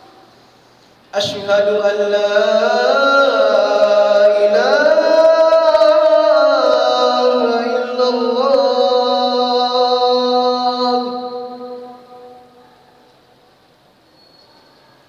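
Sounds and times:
man chanting call to prayer: 1.1 - 12.6.

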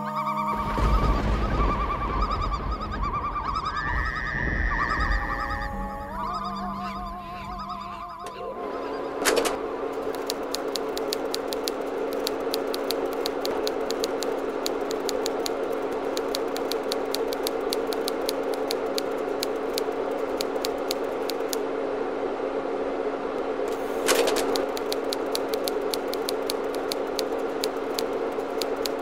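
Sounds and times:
steady low hum: 3.3 - 29.0
typewriter keystrokes: 9.3 - 21.6, 24.0 - 29.0.

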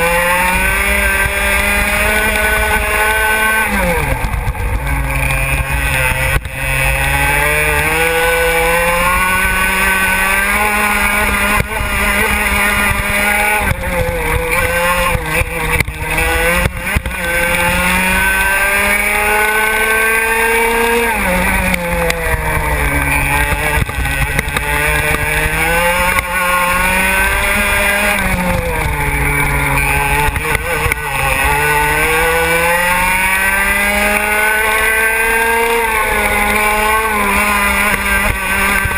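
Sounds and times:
racing kart engine: 0.0 - 38.9.

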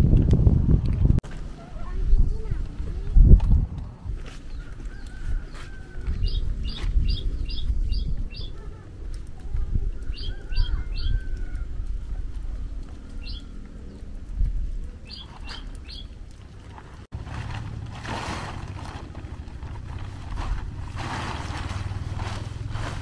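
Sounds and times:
small bird chirping: 4.5 - 8.8, 10.0 - 11.4, 13.1 - 14.1, 15.0 - 16.1.

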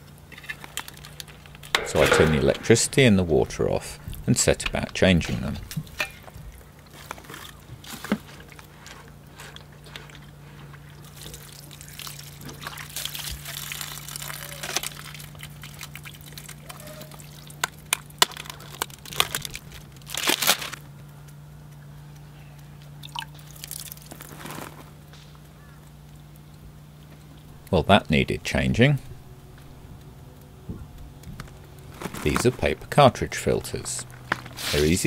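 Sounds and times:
faint low hum: 0.0 - 35.0
water sloshing and pouring: 11.0 - 17.9, 23.0 - 24.6.

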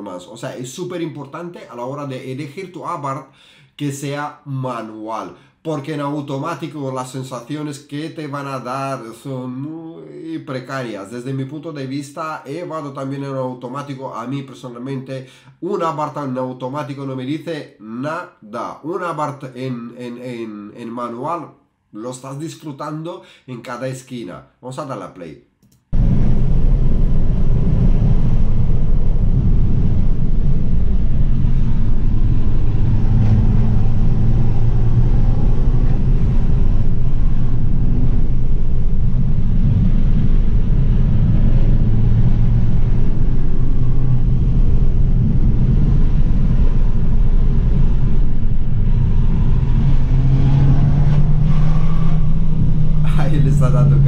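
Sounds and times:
road noise: 26.0 - 54.0
car engine running: 47.9 - 54.0.

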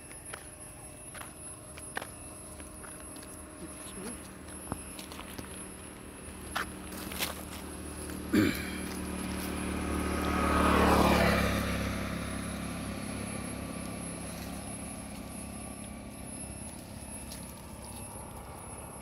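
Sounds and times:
motor vehicle passing: 5.9 - 19.0.

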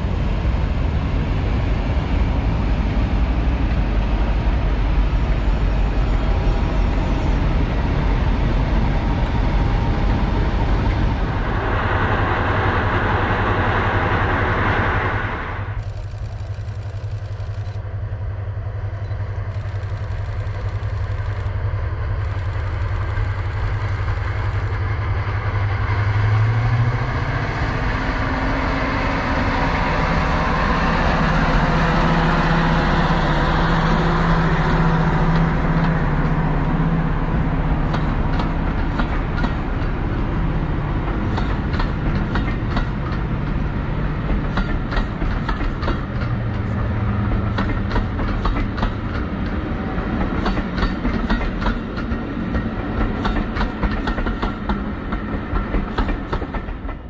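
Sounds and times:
diesel locomotive engine running: 0.0 - 57.0
loud rushing noise: 5.8 - 16.7.

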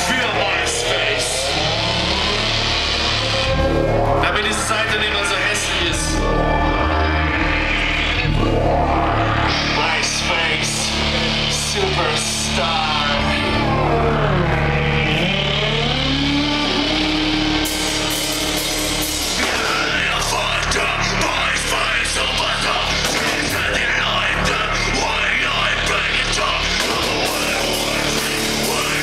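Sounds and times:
bass guitar: 0.0 - 29.0
electric guitar: 5.6 - 21.3, 25.7 - 29.0
drums and cymbals: 16.6 - 21.8, 22.6 - 24.1, 26.6 - 29.0.

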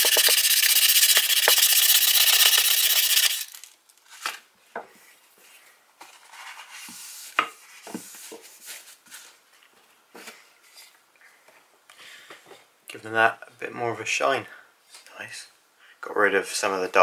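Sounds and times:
sandpaper rubbing on steel: 0.0 - 3.6.

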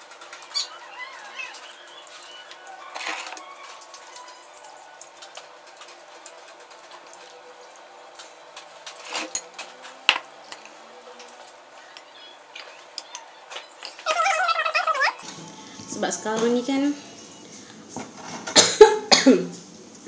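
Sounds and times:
tableware clinking: 9.0 - 10.8, 13.8 - 14.1.

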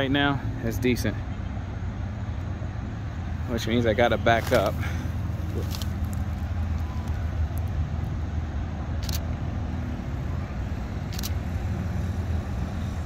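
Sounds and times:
distant road traffic hum: 0.0 - 13.0
sharp clicks: 11.1 - 11.4.

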